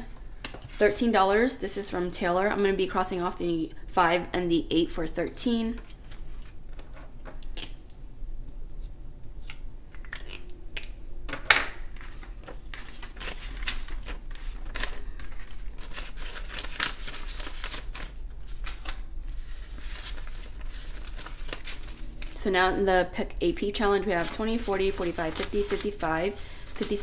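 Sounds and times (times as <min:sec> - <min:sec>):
banknotes rustling and crinkling: 0:00.0 - 0:01.2, 0:05.5 - 0:07.8, 0:11.9 - 0:22.5, 0:23.7 - 0:27.0.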